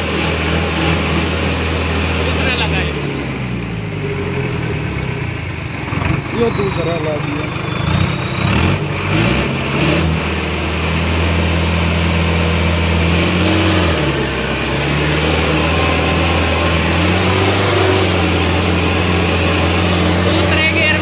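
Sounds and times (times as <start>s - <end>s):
tractor diesel engine running hard: 0.0s - 21.0s
high turbo whistle: 3.4s - 9.6s.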